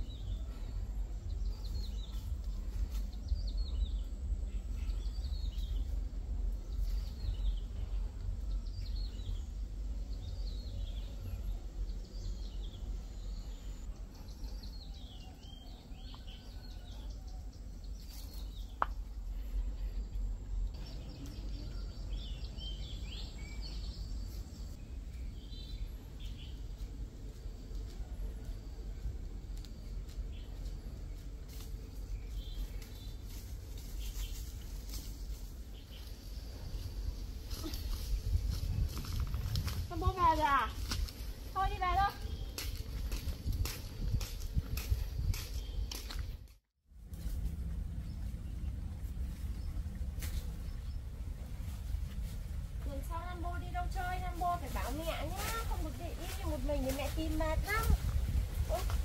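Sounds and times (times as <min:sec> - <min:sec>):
low steady rumble: 0:00.0 - 0:45.8, 0:46.9 - 0:59.0.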